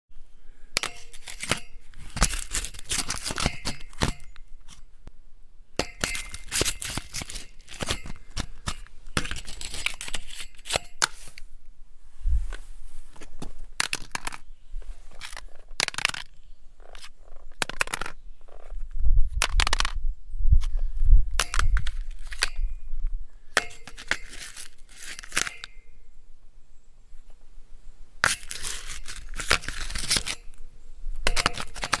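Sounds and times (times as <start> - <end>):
metal scraping and clinking: 0.8 - 4.8, 5.8 - 11.4, 23.6 - 25.8, 28.2 - 30.6.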